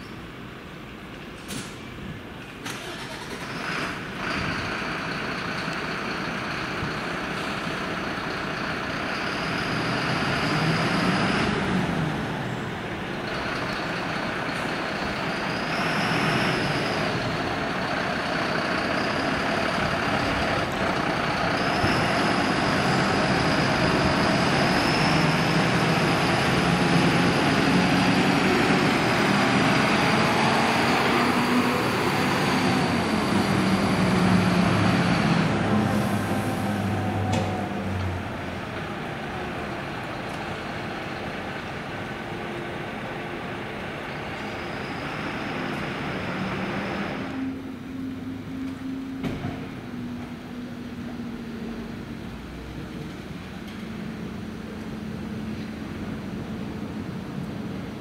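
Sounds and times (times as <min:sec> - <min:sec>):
fire engine diesel engine: 0:00.0 - 0:58.0.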